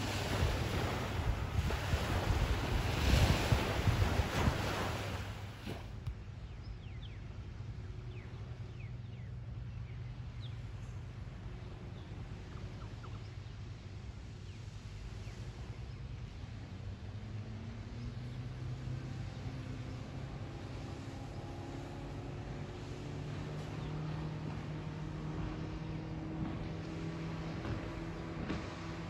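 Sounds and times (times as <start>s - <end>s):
breaking surf: 0.0s - 5.9s
wind buffeting microphone: 0.0s - 6.1s.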